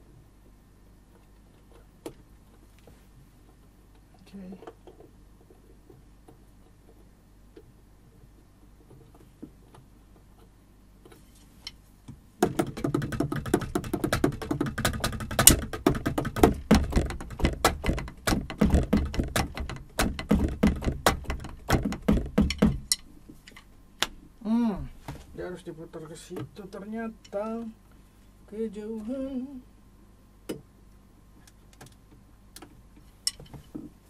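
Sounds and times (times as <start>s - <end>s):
electronic drum kit played: 12.5s - 23.0s.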